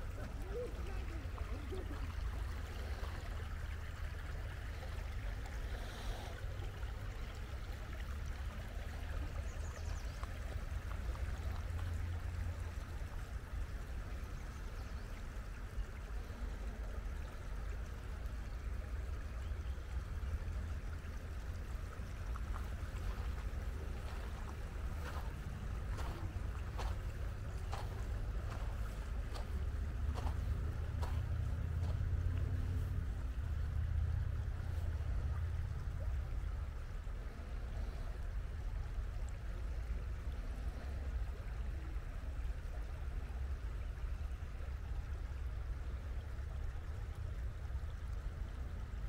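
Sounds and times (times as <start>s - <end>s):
low rumble: 20.2s - 38.0s
river rushing over stones: 21.4s - 35.1s.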